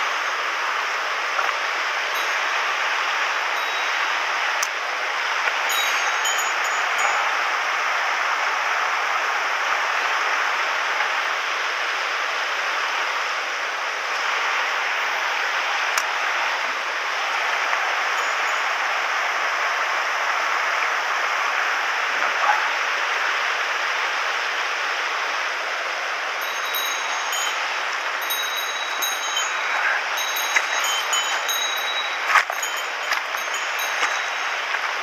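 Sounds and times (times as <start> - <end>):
stream rushing over stones: 25.8 - 35.0.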